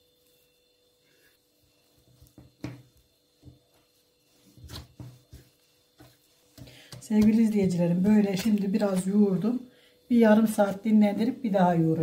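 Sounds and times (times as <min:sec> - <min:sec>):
dough thumping against glass bowl: 0:04.6 - 0:09.1.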